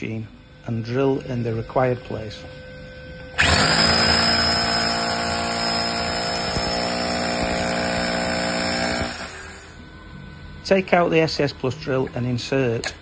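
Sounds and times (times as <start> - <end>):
hammer drill boring into block: 3.4 - 9.7.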